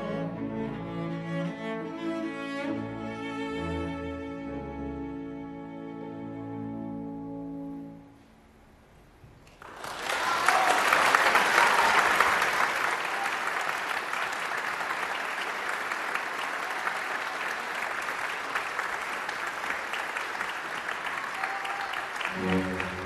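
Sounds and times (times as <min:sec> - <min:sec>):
audience applauding: 0:09.5 - 0:23.0.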